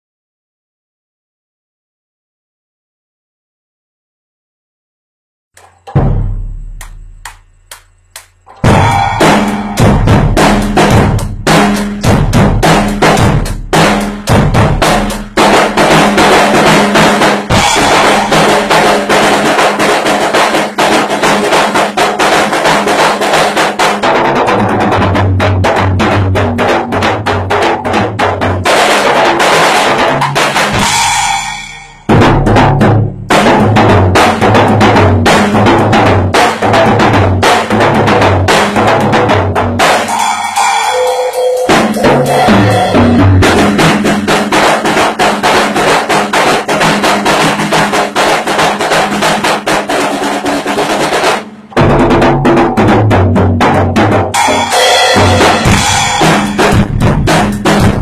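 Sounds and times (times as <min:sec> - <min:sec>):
kick drum: 0:05.6 - 0:07.5, 0:08.4 - 0:29.4, 0:32.1 - 0:40.0, 0:51.7 - 0:54.4, 0:55.2 - 0:58.0
cymbals: 0:05.6 - 0:24.0, 0:28.6 - 0:34.5, 0:39.8 - 0:51.8, 0:54.3 - 0:58.0
snare drum: 0:05.6 - 0:58.0.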